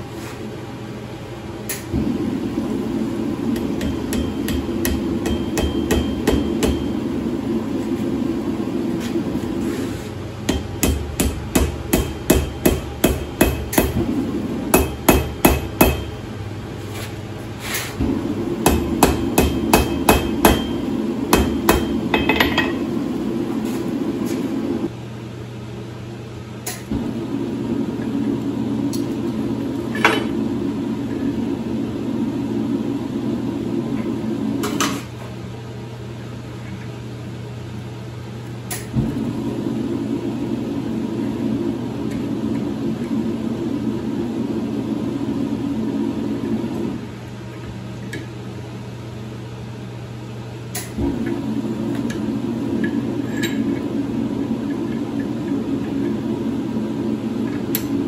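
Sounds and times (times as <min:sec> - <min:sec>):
hammer striking steel on anvil: 0:03.6 - 0:07.0, 0:10.5 - 0:14.0, 0:14.7 - 0:16.2, 0:18.6 - 0:22.9.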